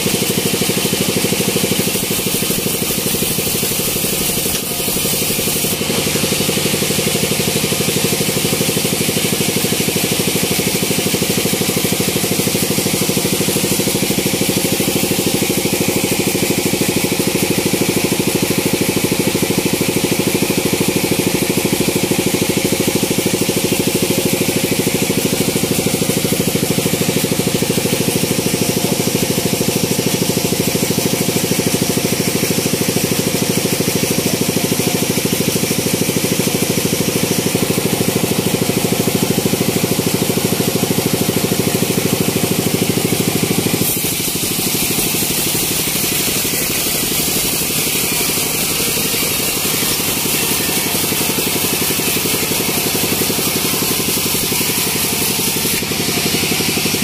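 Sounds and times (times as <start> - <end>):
band sawmill humming: 37.6 - 57.0.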